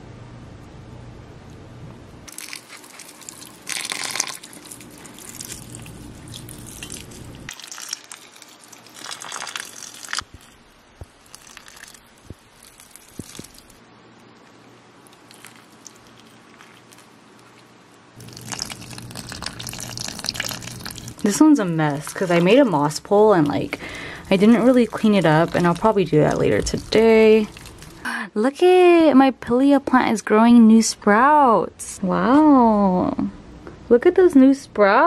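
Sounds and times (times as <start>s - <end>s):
water pouring onto soil: 2.3s - 5.7s, 6.4s - 10.5s, 11.3s - 12.0s, 18.2s - 21.3s.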